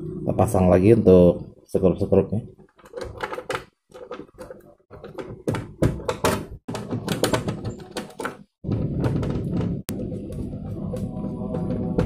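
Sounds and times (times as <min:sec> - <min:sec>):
plastic parts clicking and clattering: 0:02.5 - 0:09.9.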